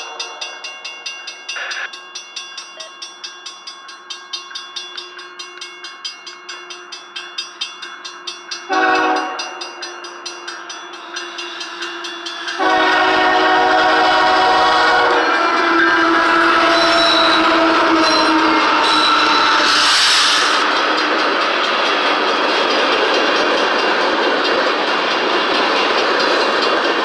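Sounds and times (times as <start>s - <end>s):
crossing bell ringing: 0.0s - 27.0s
locomotive horn blasts: 8.7s - 9.6s, 12.6s - 19.8s.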